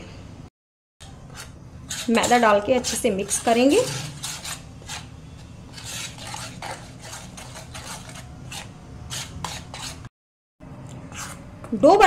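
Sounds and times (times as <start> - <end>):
metal spoon scraping steel pan: 1.3 - 10.1.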